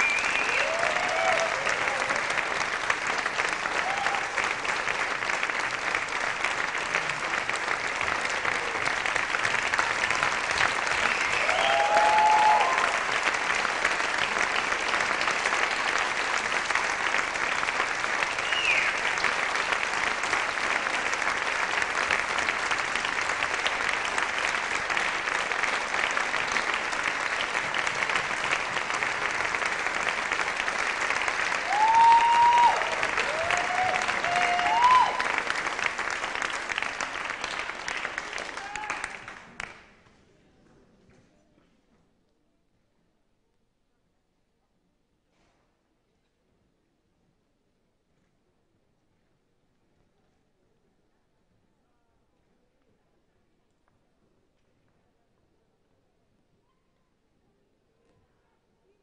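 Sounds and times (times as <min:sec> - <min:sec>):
audience applauding: 0:00.0 - 0:39.9.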